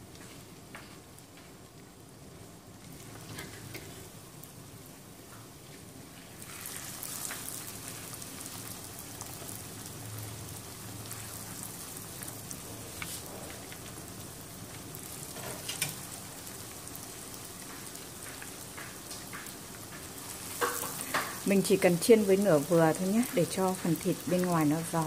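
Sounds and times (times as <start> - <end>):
pork frying in oil: 0.0 - 25.0.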